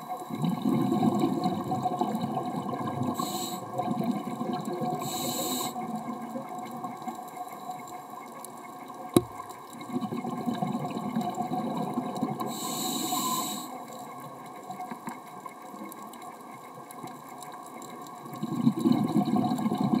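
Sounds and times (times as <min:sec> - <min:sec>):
faint steady hum: 0:00.0 - 0:20.0
diver breathing through regulator: 0:03.2 - 0:03.7, 0:05.0 - 0:05.8, 0:12.5 - 0:13.8.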